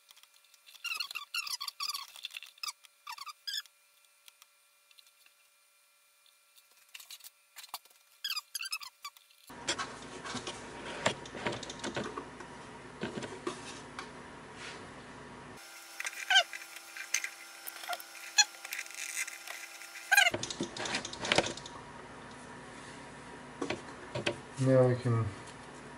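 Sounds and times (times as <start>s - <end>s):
short squeaks falling in pitch: 8.2s - 9.2s.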